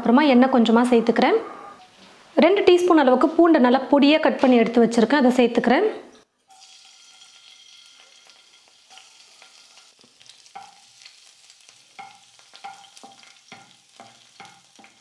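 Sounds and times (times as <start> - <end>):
garlic sizzling in oil: 6.4 - 15.0.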